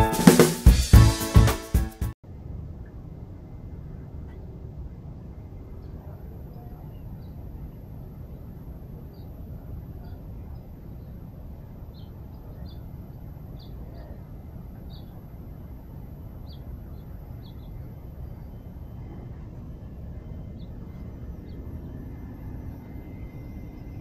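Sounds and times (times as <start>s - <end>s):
low outdoor rumble: 2.2s - 24.0s
small bird chirping: 11.9s - 15.4s, 16.4s - 19.0s.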